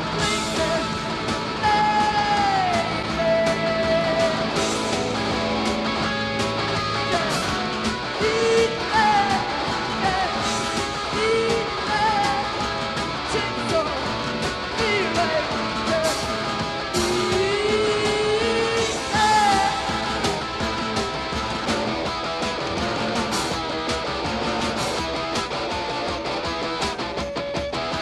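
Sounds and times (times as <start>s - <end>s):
electric guitar: 0.0s - 28.0s
steady drum beat: 0.0s - 28.0s
woman singing: 1.6s - 4.6s, 8.2s - 12.6s, 17.0s - 20.2s.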